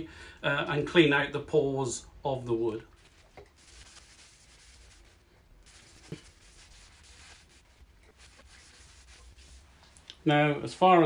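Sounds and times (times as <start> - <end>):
cloth scrubbing on wood: 3.0 - 9.8.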